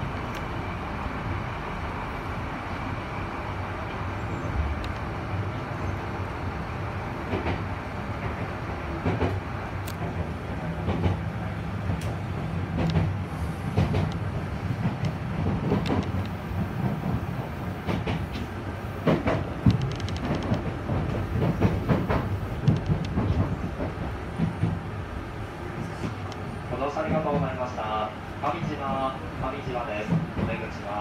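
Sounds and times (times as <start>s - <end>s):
train running gear humming: 0.0s - 31.0s
wheels clicking on track: 13.8s - 24.8s.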